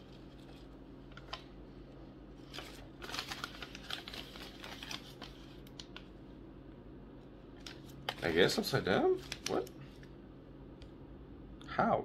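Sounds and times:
low steady hum: 0.0s - 12.0s
paper rustling and crinkling: 2.4s - 6.1s, 7.6s - 8.6s, 9.2s - 9.7s.

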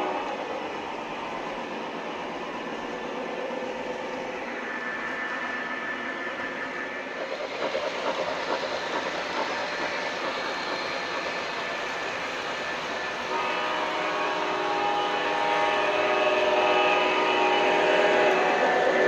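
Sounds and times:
model train wheels clicking: 6.4s - 19.0s.

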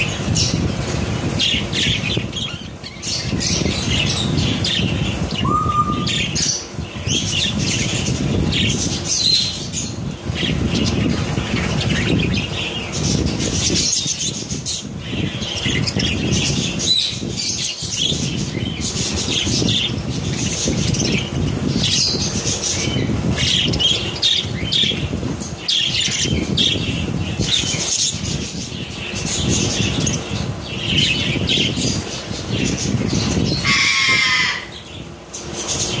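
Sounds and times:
wing fluttering and rustling: 0.0s - 5.5s, 6.2s - 36.0s
budgerigars chattering: 1.4s - 9.6s, 33.4s - 34.8s
rising bird call: 5.4s - 6.4s.

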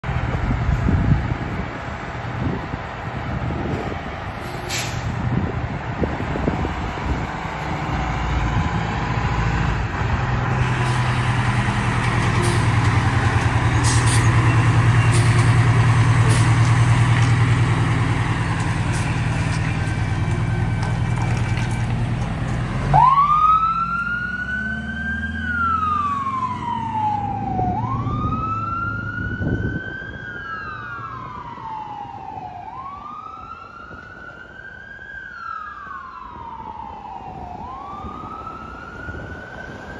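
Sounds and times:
diesel engine running hard: 0.0s - 28.4s
fire engine siren wailing: 0.0s - 39.9s
short sharp hisses: 4.4s - 5.1s.

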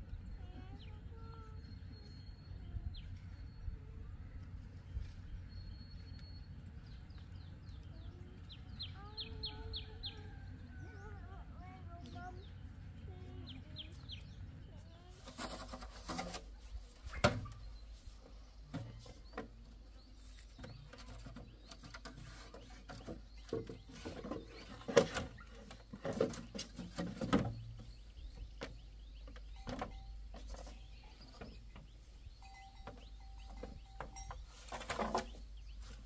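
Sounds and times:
knocks and handling noises: 32.8s - 36.0s.

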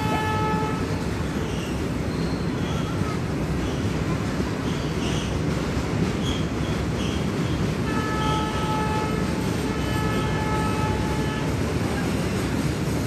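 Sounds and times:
train horn blasts: 0.0s - 1.2s, 7.8s - 11.7s
freight train rumbling on rails: 0.0s - 13.0s.

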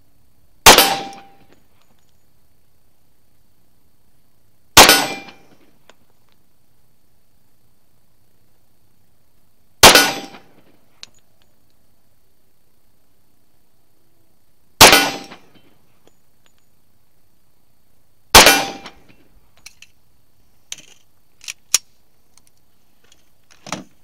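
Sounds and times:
pistol shots: 0.6s - 1.4s, 4.8s - 5.4s, 9.8s - 10.5s, 14.8s - 15.4s, 18.3s - 19.0s.

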